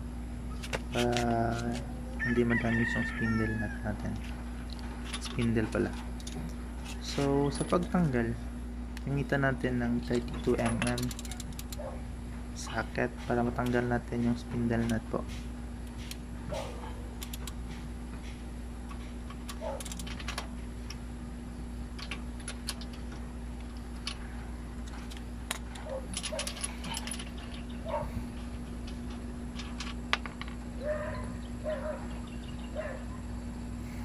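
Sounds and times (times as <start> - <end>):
metal tools being handled: 4.1 - 8.1, 10.1 - 11.8, 18.9 - 20.5, 22.0 - 31.9
socket ratchet clicking: 10.6 - 11.8, 17.2 - 17.6, 19.3 - 21.0.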